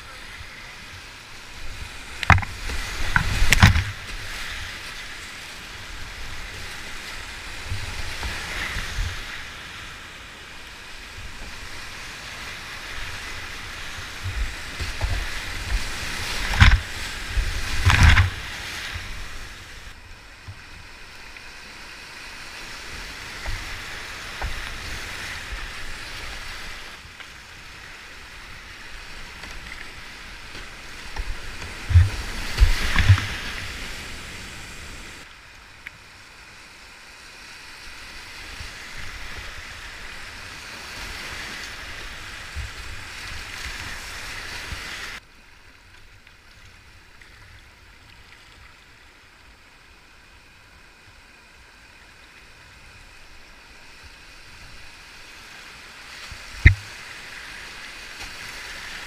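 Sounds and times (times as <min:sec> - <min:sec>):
whitewater rushing over rocks: 0:10.9 - 0:20.0, 0:28.3 - 0:35.3.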